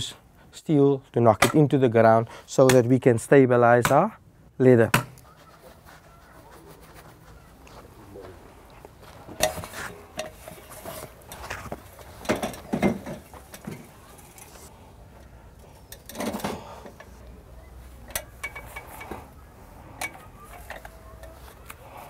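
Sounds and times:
metal ladder clanking: 9.3 - 14.7.

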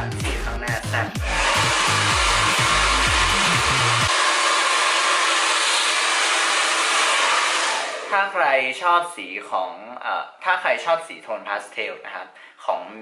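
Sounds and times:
hair dryer blowing: 1.2 - 8.2.

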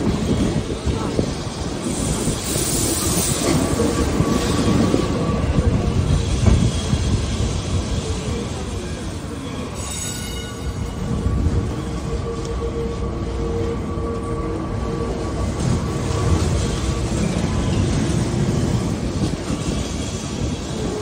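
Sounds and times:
tram wheels rumbling and clattering: 0.0 - 21.0
wheel squeal hiss: 1.8 - 7.6, 8.9 - 11.2.

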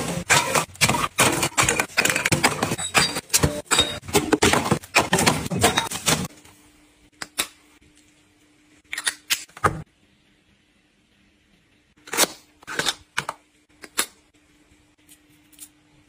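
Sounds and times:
packaging and cans clattering into bin: 0.0 - 6.4.

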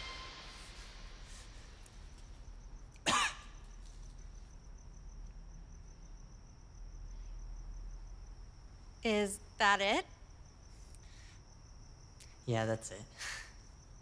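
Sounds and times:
crickets chirping: 0.0 - 14.0
person coughing: 3.0 - 3.4.

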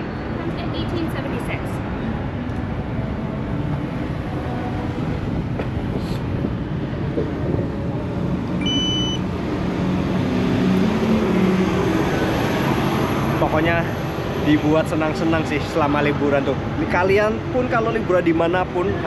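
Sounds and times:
street traffic rumble: 0.0 - 19.0
two-pitch electronic beep: 8.6 - 9.2.

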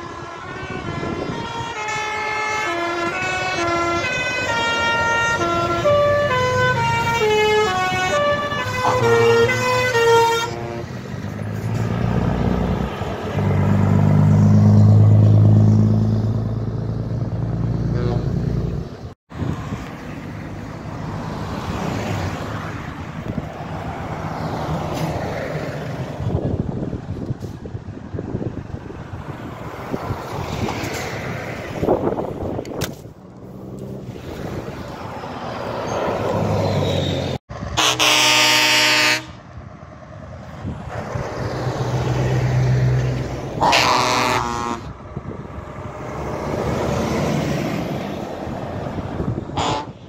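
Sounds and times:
musical air horn tune: 0.0 - 11.0, 37.8 - 39.4, 43.6 - 44.9, 49.6 - 50.0
passing traffic rumble: 0.0 - 50.0
truck passing with deep drone: 0.0 - 50.0.

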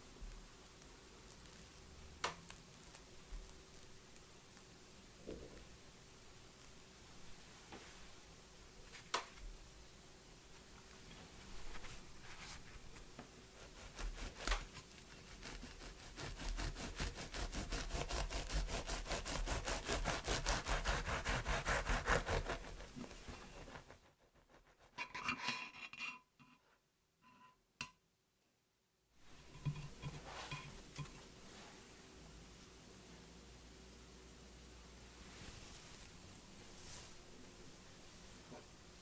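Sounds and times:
knife sawing through bread: 13.6 - 25.0.

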